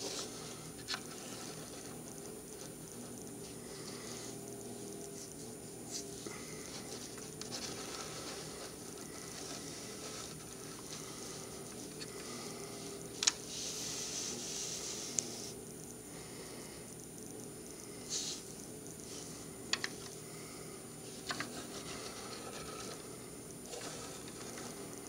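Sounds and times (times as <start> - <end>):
steady low hum: 0.0 - 25.0
plastic toy car scraping and rustling: 7.0 - 11.0, 21.2 - 23.1, 23.7 - 25.0.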